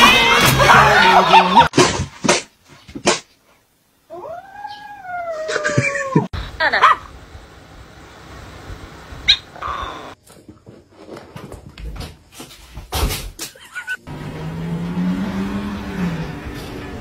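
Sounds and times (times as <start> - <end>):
scuffling and knocks: 10.2 - 13.6.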